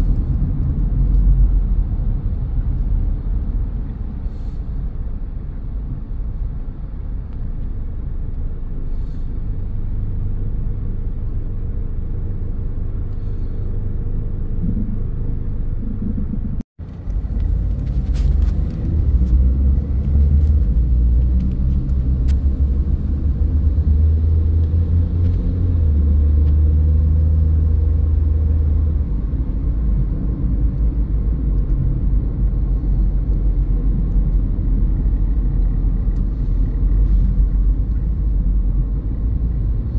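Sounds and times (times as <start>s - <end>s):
car engine and tyre noise: 0.0s - 39.9s.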